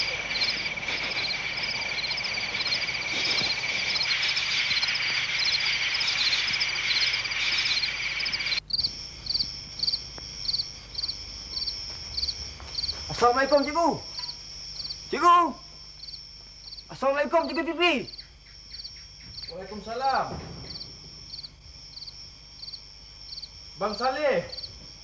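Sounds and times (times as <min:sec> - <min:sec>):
rapid chirps: 0:00.0 - 0:20.0
evenly spaced chirps: 0:00.0 - 0:20.8
frogs and insects trilling: 0:00.0 - 0:25.0
thin steady high tone: 0:00.0 - 0:25.0.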